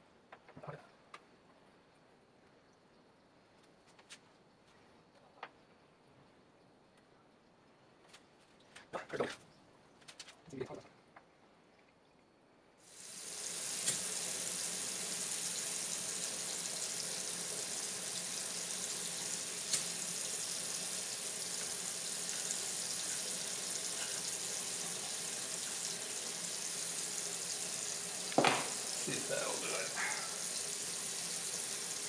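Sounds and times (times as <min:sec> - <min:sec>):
faucet running into sink: 0:12.9 - 0:32.0.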